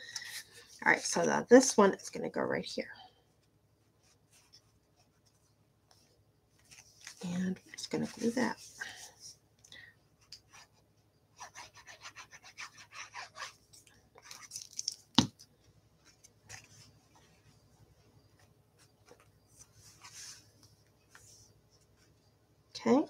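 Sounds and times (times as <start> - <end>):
paper rustling: 12.9 - 15.4.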